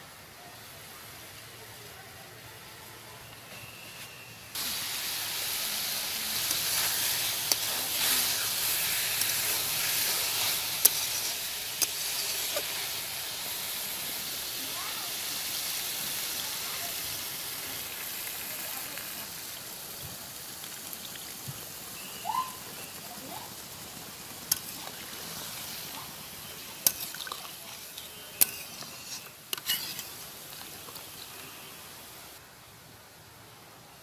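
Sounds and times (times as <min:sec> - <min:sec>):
liquid sizzling in hot pan: 0:04.5 - 0:32.4
metal ladle clinking against pan: 0:26.8 - 0:30.1.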